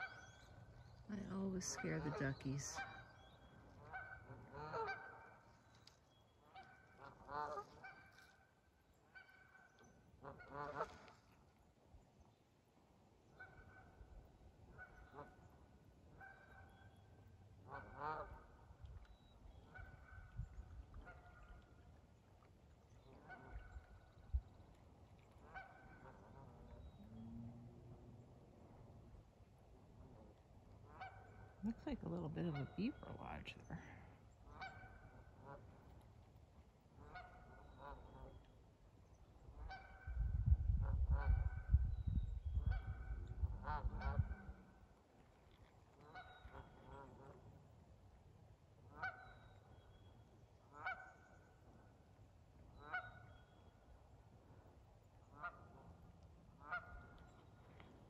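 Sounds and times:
geese honking: 1.1s - 3.2s, 3.8s - 5.4s, 6.5s - 8.2s, 10.2s - 11.0s, 17.7s - 18.5s, 30.9s - 32.0s, 32.6s - 33.3s, 56.6s - 57.4s.

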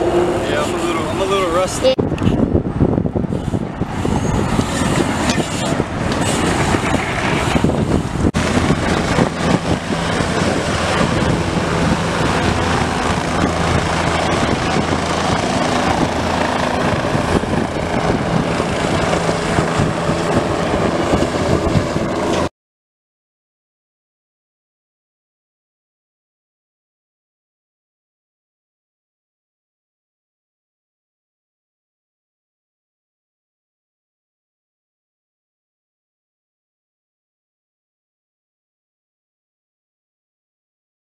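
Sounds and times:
helicopter rotor and turbine: 0.0s - 22.5s
rough outdoor noise: 0.0s - 22.5s.

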